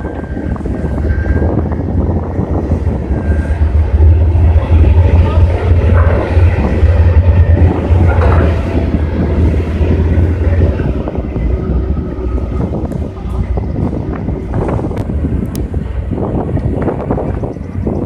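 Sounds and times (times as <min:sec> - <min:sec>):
low engine rumble: 0:00.0 - 0:18.0
wind on microphone: 0:00.0 - 0:18.0.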